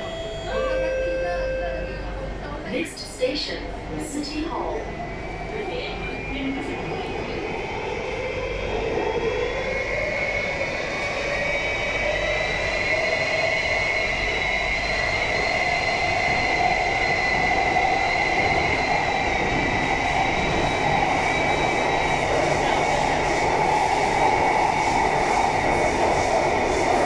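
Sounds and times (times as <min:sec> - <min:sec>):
train wheels rumbling in tunnel: 0:00.0 - 0:27.0.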